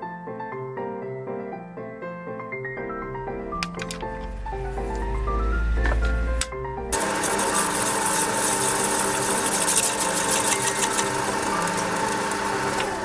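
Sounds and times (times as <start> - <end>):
piano-like music: 0.0 - 13.0
lathe motor whine: 6.9 - 13.0
drill cutting brass hiss: 7.0 - 13.0.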